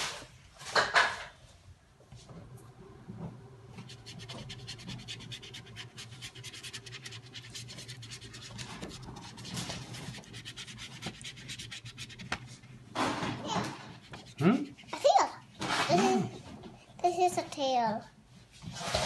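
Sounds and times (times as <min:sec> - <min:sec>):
paintbrush scrubbing paper: 0:03.7 - 0:12.8, 0:13.6 - 0:15.7.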